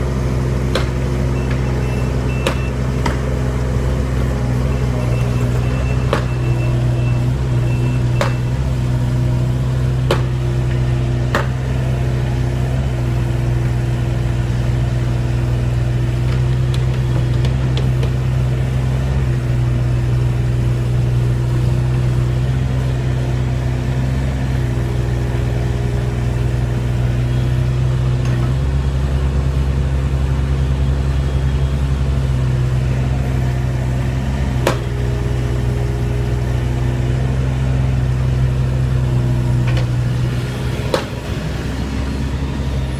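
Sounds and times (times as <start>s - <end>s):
excavator diesel engine running: 0.0s - 42.9s
sharp knocks: 0.7s - 1.6s, 2.4s - 3.3s, 8.2s - 8.5s, 10.1s - 10.4s, 11.3s - 11.6s, 34.6s - 34.9s.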